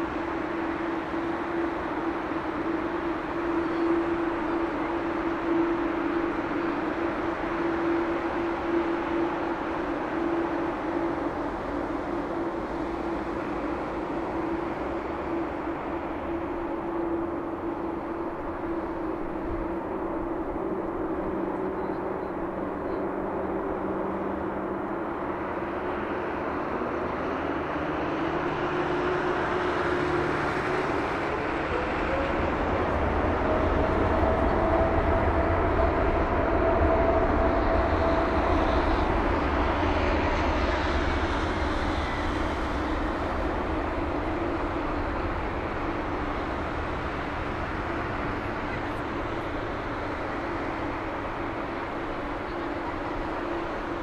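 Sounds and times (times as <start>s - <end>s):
jet engine whine: 0.0s - 54.0s
deep engine rumble: 26.5s - 54.0s.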